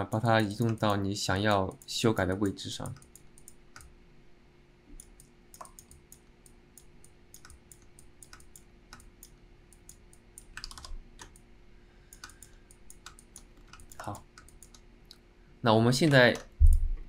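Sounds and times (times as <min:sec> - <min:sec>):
faint steady hum: 0:00.0 - 0:17.0
computer keyboard clicking: 0:00.3 - 0:03.9, 0:05.0 - 0:11.4, 0:12.1 - 0:14.8
mouse clicking: 0:00.3 - 0:03.9, 0:05.0 - 0:11.5, 0:12.1 - 0:15.2.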